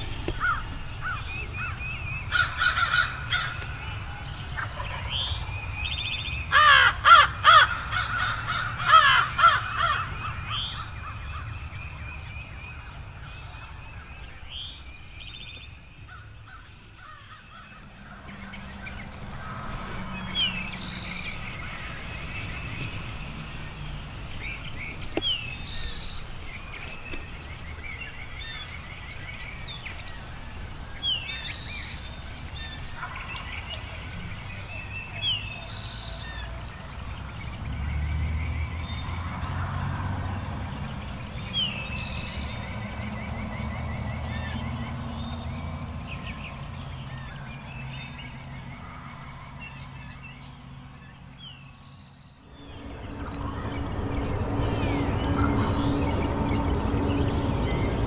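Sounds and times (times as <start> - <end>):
songbirds chirping and trilling: 0.0 - 58.0
crows cawing: 0.4 - 3.8, 6.5 - 11.5, 16.1 - 22.6.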